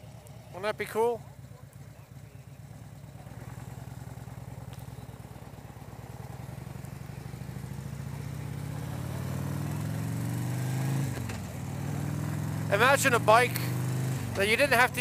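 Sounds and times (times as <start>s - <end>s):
motorcycle engine accelerating: 0.0s - 15.0s.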